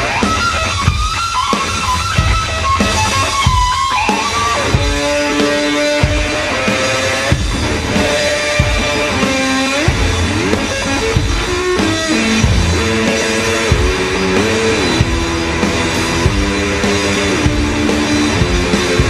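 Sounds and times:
drum kit hits: 0:00.0 - 0:19.0
electric slide guitar: 0:00.0 - 0:19.0.

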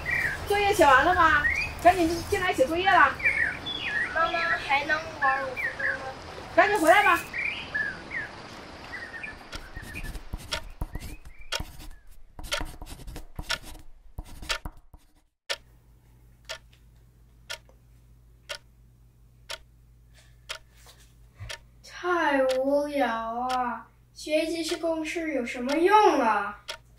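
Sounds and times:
clock ticking: 0:09.5 - 0:14.8, 0:15.5 - 0:15.7, 0:16.5 - 0:16.7, 0:17.5 - 0:17.7, 0:18.5 - 0:18.7, 0:19.5 - 0:19.7, 0:20.5 - 0:20.7, 0:21.5 - 0:21.7, 0:22.4 - 0:22.7, 0:23.4 - 0:23.7, 0:24.5 - 0:26.9
irregular clicks and knocks: 0:09.5 - 0:15.7, 0:20.5 - 0:20.7, 0:21.4 - 0:21.6
low steady hum: 0:15.6 - 0:26.9.

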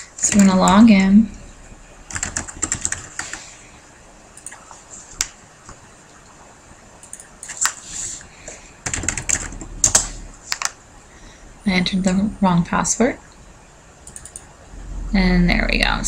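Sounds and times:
typing on computer keyboard: 0:02.1 - 0:03.5, 0:07.0 - 0:07.8, 0:08.8 - 0:10.8, 0:14.0 - 0:14.4.

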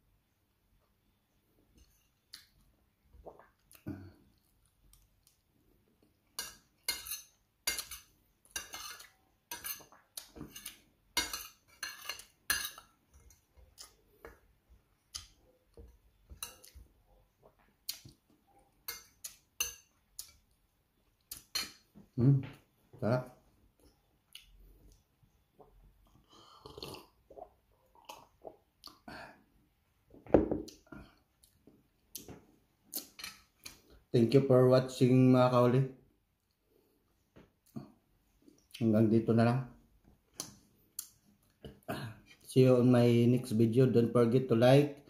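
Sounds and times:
cutlery scraping a ceramic plate: 0:06.4 - 0:13.4.

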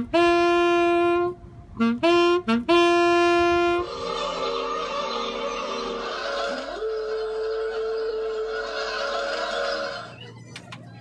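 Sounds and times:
saxophone phrases: 0:00.0 - 0:08.3
noisy sound: 0:03.7 - 0:11.0.

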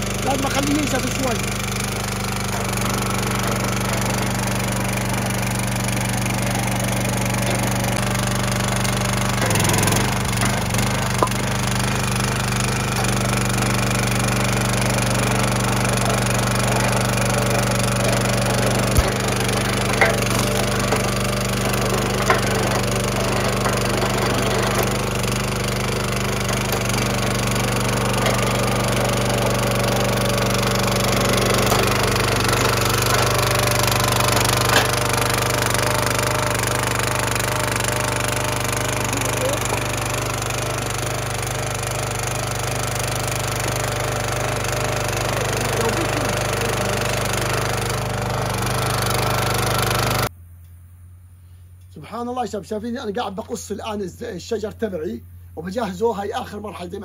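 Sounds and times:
small gas engine running: 0:00.0 - 0:50.4
firewood splitting cracks: 0:02.5 - 0:14.0, 0:15.8 - 0:25.6.

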